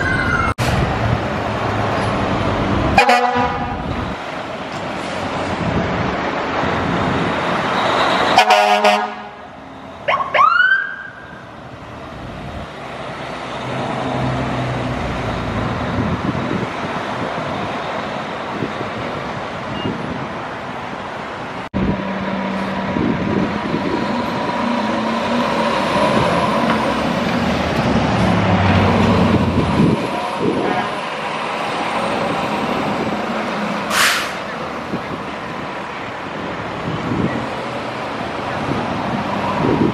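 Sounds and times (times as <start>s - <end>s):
diesel truck engines: 0.0s - 39.9s
street traffic: 0.0s - 39.9s
air horn blast: 3.0s - 3.8s, 8.4s - 9.4s
siren: 10.0s - 11.5s.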